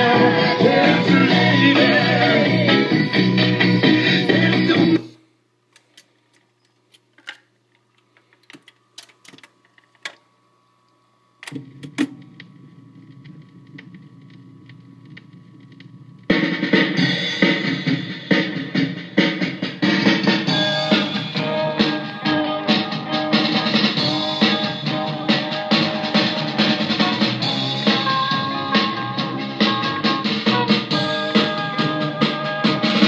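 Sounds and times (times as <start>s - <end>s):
song with drums: 0.0s - 5.0s, 16.3s - 33.0s
record surface noise: 5.7s - 33.0s
record changer mechanism clicks: 11.4s - 15.9s.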